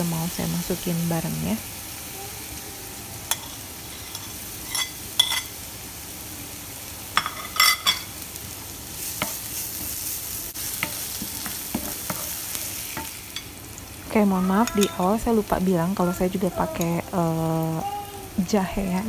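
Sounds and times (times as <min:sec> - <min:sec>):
garlic and shallots sizzling in oil: 0:00.0 - 0:19.0
metal spoon clinking: 0:03.3 - 0:05.5, 0:07.2 - 0:08.1.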